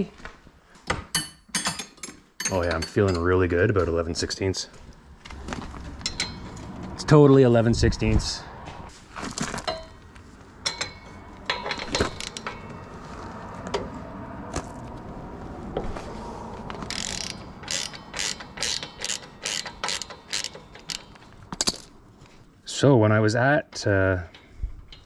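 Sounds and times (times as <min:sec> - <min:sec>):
metal clicks and clinks: 0:01.2 - 0:03.4, 0:06.0 - 0:06.7, 0:10.6 - 0:12.8, 0:16.8 - 0:22.0, 0:23.8 - 0:25.0
hand ratchet clicking: 0:16.8 - 0:21.9.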